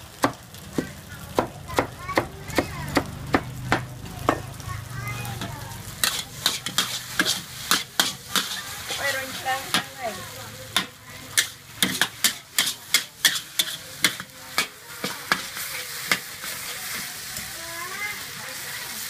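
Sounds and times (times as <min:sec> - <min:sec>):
food sizzling: 0:00.0 - 0:19.0
metal ladles clanking on a wok: 0:05.4 - 0:17.5.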